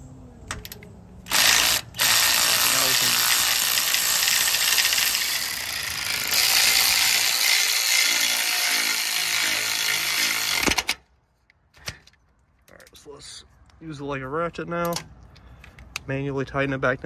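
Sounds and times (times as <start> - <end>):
power ratchet whirring: 1.2 - 11.0.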